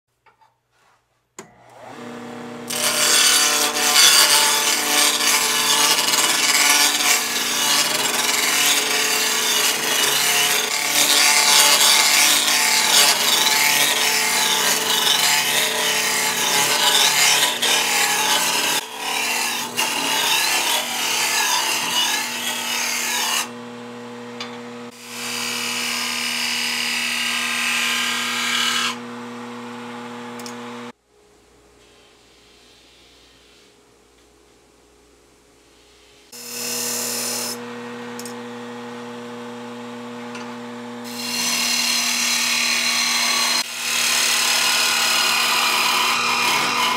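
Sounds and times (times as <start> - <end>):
turning tool cutting wood: 1.4 - 23.7, 24.3 - 30.9, 40.2 - 46.9.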